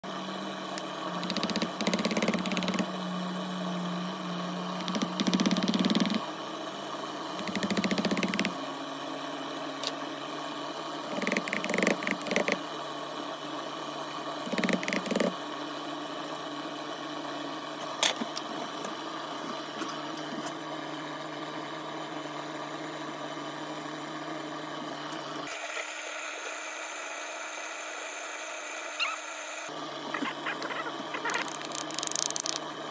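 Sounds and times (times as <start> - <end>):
motor humming: 0.0 - 8.9, 11.0 - 12.7, 14.1 - 15.4, 25.0 - 32.9.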